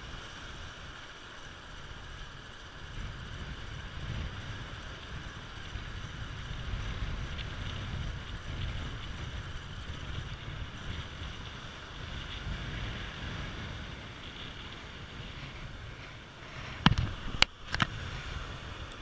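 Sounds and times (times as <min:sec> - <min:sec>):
wind buffeting microphone: 0:01.8 - 0:19.0
surf breaking on beach: 0:10.1 - 0:19.0.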